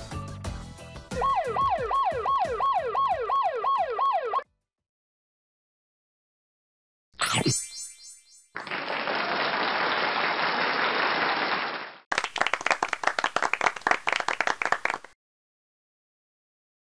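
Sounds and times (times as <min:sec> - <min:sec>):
crowd clapping: 0:08.6 - 0:15.2
sharp separate hand claps: 0:08.6 - 0:15.2.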